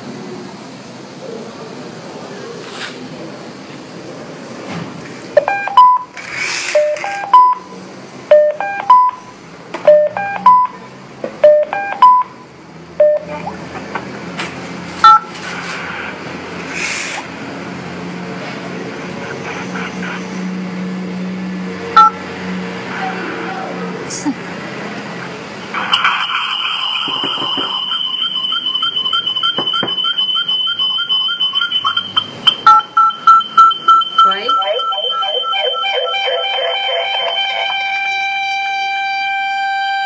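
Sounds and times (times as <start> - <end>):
touch-tone key beeps: 5.4 - 6.1, 6.8 - 7.6, 8.3 - 9.2, 9.9 - 10.8, 11.4 - 12.3, 13.0 - 13.3, 15.0 - 15.3, 22.0 - 22.2, 27.7 - 37.7
rising three-note phone tones: 27.4 - 40.0.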